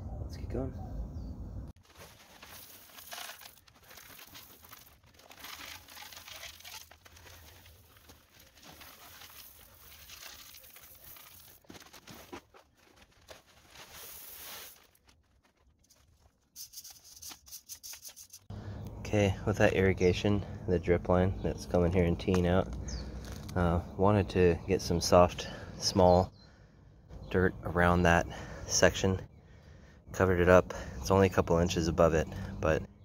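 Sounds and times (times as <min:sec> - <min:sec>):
gravel pattering onto gravel: 0:01.8 - 0:17.2, 0:22.2 - 0:23.6
plastic bag crinkling: 0:01.8 - 0:17.2
rake scraping gravel: 0:01.8 - 0:18.5, 0:22.3 - 0:23.6.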